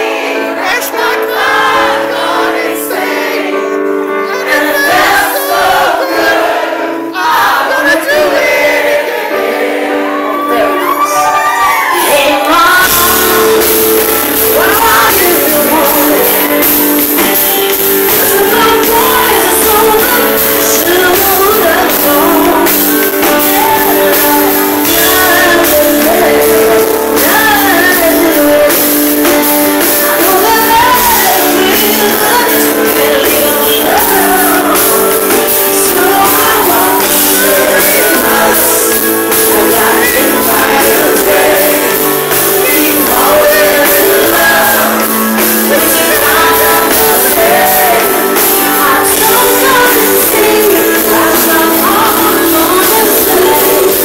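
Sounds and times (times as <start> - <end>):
held keyboard chords: 0.0 - 54.0
woman singing into a microphone: 10.3 - 54.0
drums: 10.8 - 54.0
electric bass guitar: 11.8 - 54.0.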